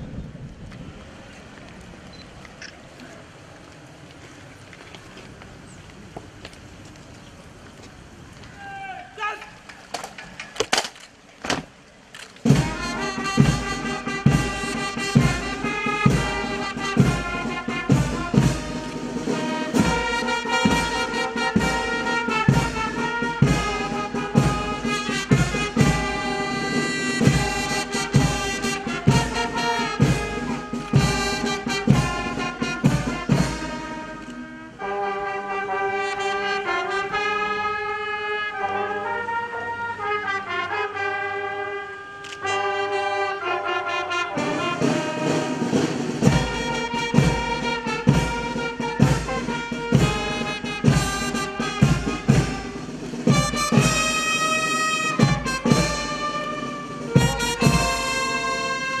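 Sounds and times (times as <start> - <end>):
brass band playing: 12.4 - 59.0.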